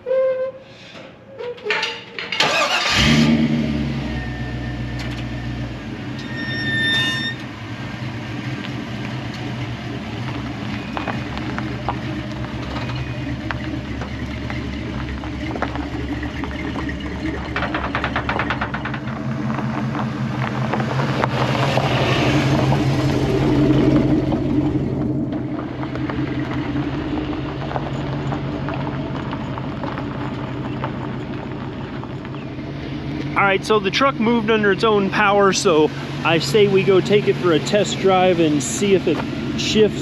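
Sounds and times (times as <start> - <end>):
truck engine and exhaust: 0.0 - 40.0.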